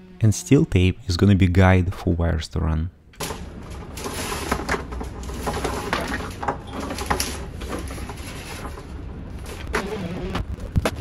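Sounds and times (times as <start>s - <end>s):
wires scraping through conduit: 3.2s - 10.3s.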